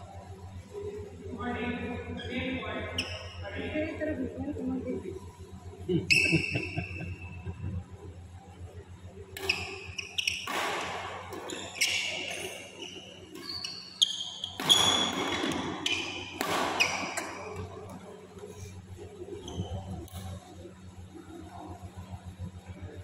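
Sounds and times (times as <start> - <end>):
racket striking shuttlecock: 9.4 - 11.6, 14.6 - 17.7
shoes squeaking on court: 9.4 - 18.0, 19.4 - 20.2.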